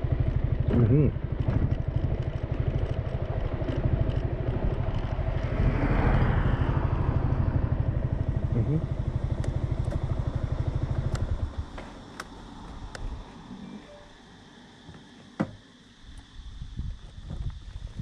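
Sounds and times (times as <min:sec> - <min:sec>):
scooter engine throbbing: 0:00.0 - 0:13.6.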